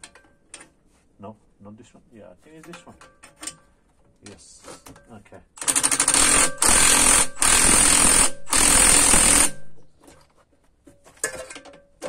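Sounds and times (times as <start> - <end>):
impact wrench hammering: 5.6 - 9.8.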